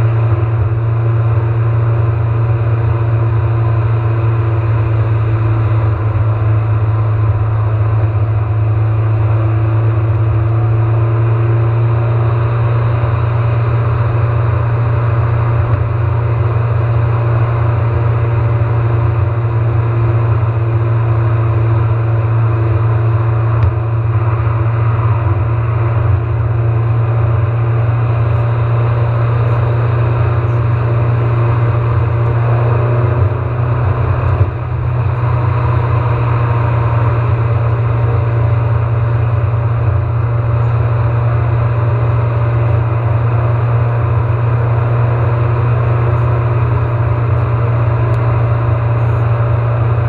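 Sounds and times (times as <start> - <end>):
car cabin road and engine drone: 0.0 - 50.0.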